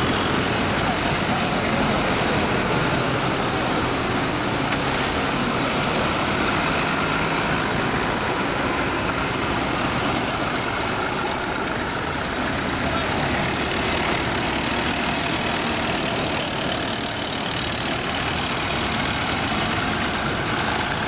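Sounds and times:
diesel tractor engines passing: 0.0 - 21.0
fast even ticking: 9.2 - 13.3.

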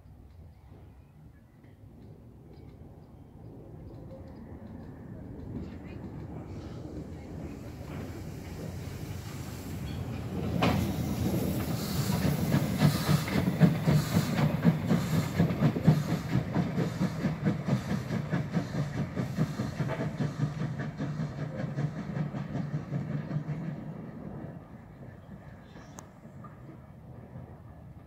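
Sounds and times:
steam locomotive exhaust chuffs: 5.4 - 26.7
steam hiss: 6.5 - 24.0.

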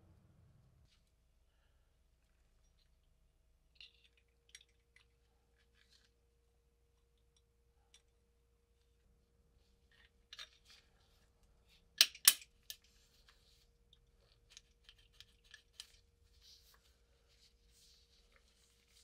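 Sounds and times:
metal parts clicking together: 12.0 - 12.9
glove rustles: 16.0 - 19.0.

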